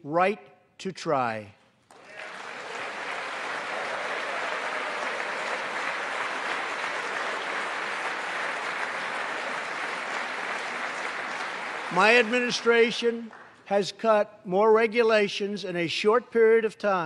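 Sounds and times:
large audience applauding: 1.9 - 13.6.

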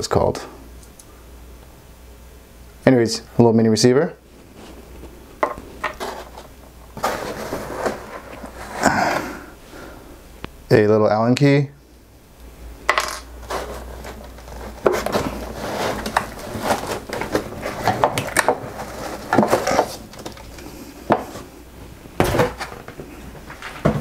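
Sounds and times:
plastic case scraping against foam: 5.9 - 8.9, 13.4 - 20.4.

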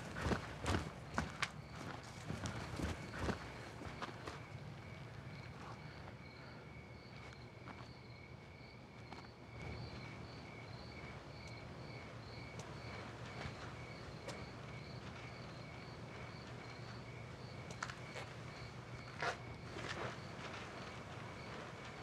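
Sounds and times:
crickets chirping: 0.0 - 22.0
faint ticks: 12.5 - 14.4.

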